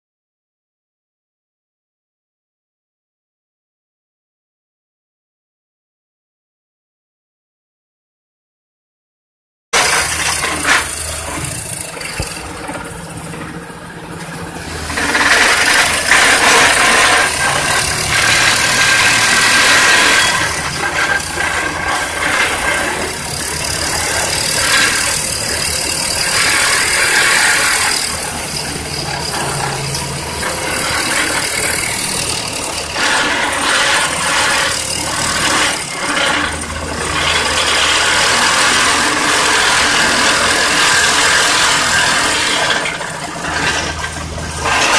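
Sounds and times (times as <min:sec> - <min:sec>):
diesel engine: 0:09.8 - 0:44.9.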